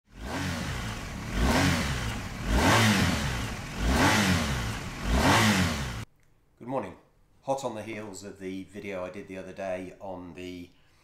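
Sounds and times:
motorcycle engine revving: 0.1s - 6.1s.

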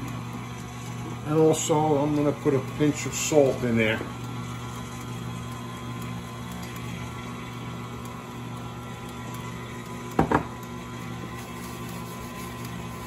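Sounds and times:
stand mixer whisking batter: 0.0s - 13.0s.

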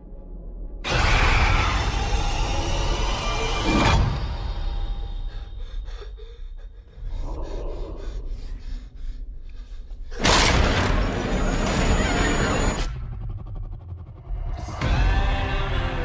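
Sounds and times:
breathy sounds: 4.4s - 11.8s.

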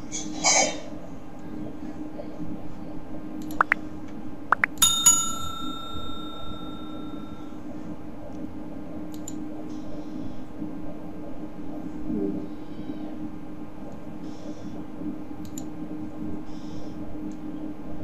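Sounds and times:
steady low hum: 0.0s - 18.0s
bell ding: 4.8s - 7.5s.

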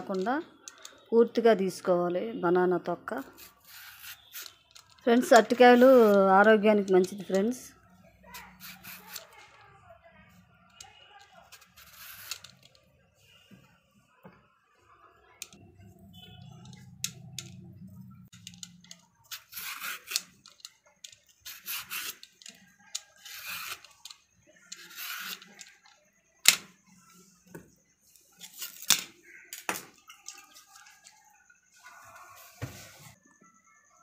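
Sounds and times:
peeler scraping banana skin: 3.3s - 6.4s, 8.3s - 9.4s, 11.4s - 12.8s, 19.2s - 20.6s, 21.4s - 25.8s.

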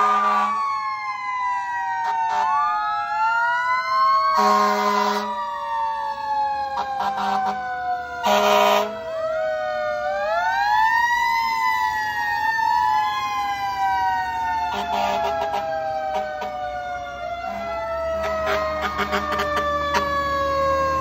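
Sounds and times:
emergency vehicle sirens wailing: 0.0s - 21.0s
horn blasts: 8.2s - 9.0s, 17.5s - 20.2s.

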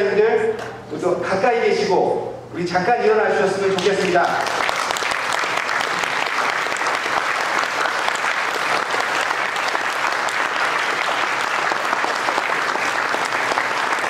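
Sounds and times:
audience applauding: 3.8s - 14.0s.

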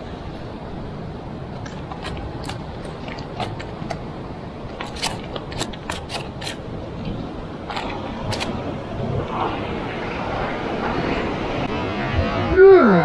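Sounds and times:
surf: 0.0s - 13.0s
wind: 0.0s - 13.0s
fish tapping on rocks: 1.6s - 4.1s, 4.7s - 6.6s.

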